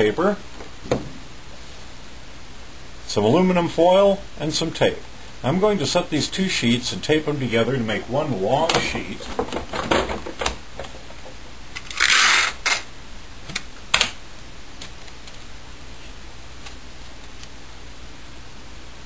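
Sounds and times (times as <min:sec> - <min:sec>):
tape pulled off dispenser: 0:11.8 - 0:12.9.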